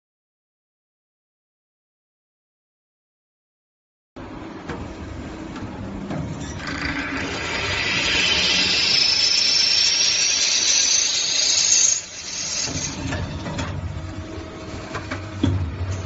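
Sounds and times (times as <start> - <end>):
machine running quietly: 4.2 - 16.0
machine cutting metal with high whine: 5.0 - 16.0.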